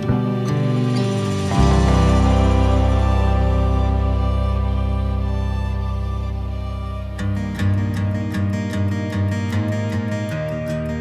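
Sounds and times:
soft instrumental music chords: 0.0s - 11.0s
deep bass note: 0.3s - 8.5s.

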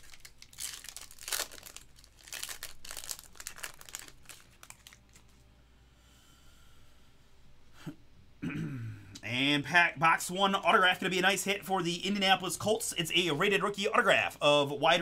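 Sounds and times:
foil wrapper crinkling: 0.0s - 5.4s.

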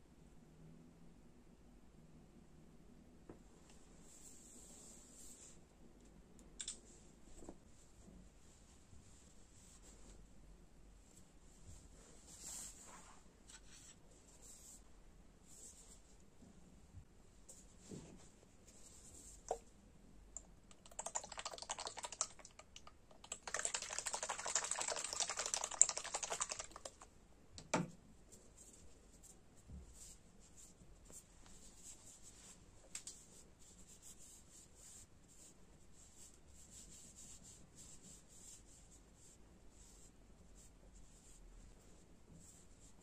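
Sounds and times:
cotton pad rubbing on face: 23.4s - 27.0s.

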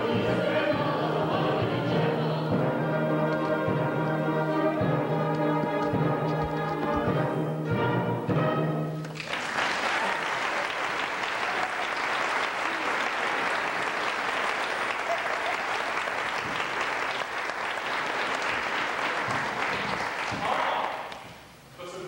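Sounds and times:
audience applauding: 9.0s - 21.2s.

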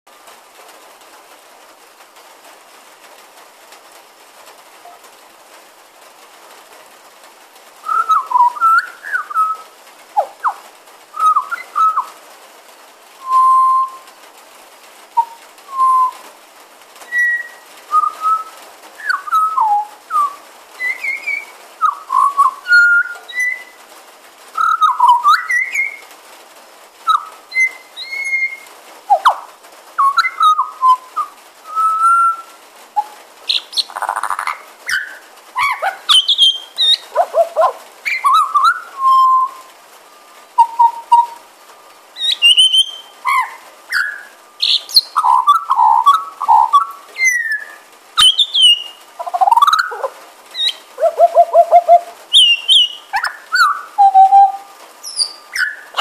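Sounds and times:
bird singing whistled notes: 7.8s - 9.6s, 11.2s - 12.1s, 13.2s - 14.1s, 15.2s - 16.2s, 17.1s - 23.8s, 24.6s - 26.0s, 27.1s - 29.4s, 30.0s - 39.7s, 40.6s - 41.4s, 42.2s - 56.0s.

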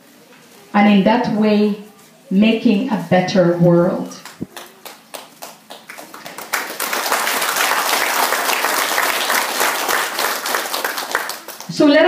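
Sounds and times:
audience applause: 4.3s - 11.7s.

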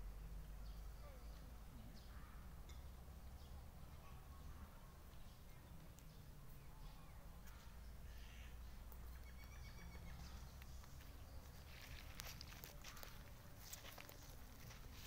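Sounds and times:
faint animal call: 8.1s - 8.6s.

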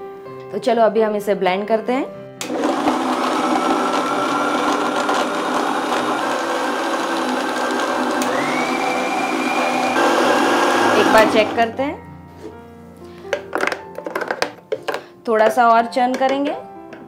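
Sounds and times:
electric blender running: 2.4s - 11.7s.

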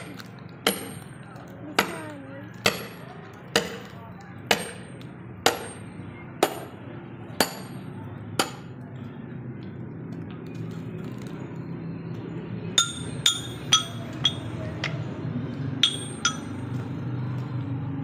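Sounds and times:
sledgehammer striking metal wedge: 0.7s - 1.1s, 2.6s - 3.0s, 4.5s - 6.7s, 7.4s - 7.8s, 12.8s - 15.0s, 15.8s - 16.8s.

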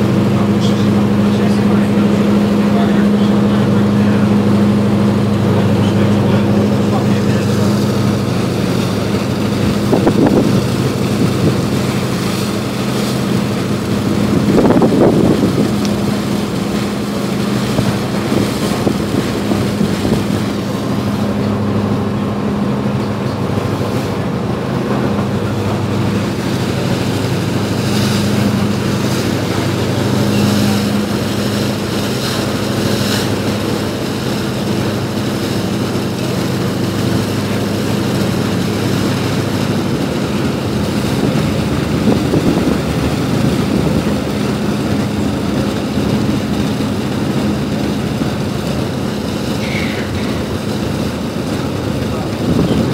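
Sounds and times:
ferry diesel engine drone: 0.0s - 52.9s
rushing water: 0.0s - 52.9s
wind gusts on microphone: 3.7s - 31.9s, 38.0s - 49.1s, 50.2s - 52.9s.

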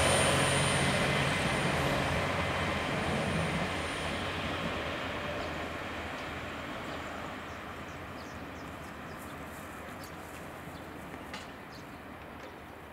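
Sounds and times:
diesel train running away: 0.0s - 12.2s
birds chirping: 5.2s - 12.1s.

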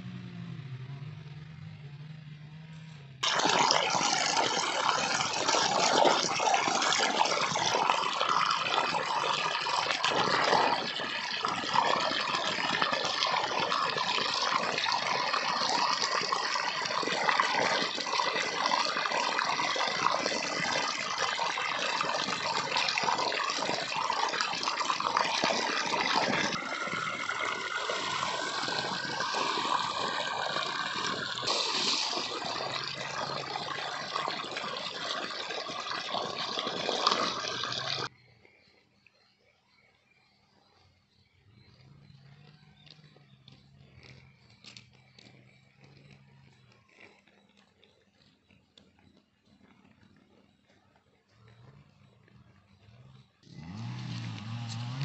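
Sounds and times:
water gushing from a pipe: 3.2s - 38.1s, 53.4s - 55.0s.

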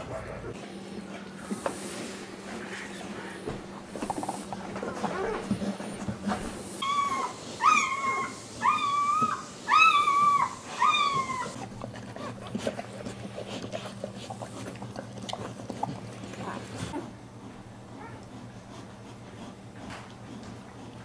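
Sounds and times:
puppy squealing cries: 6.8s - 11.6s.

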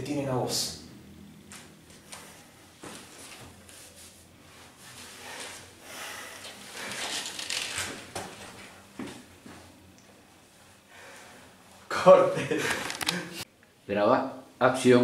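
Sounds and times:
footsteps on hard floor: 1.5s - 3.5s, 8.1s - 9.7s.

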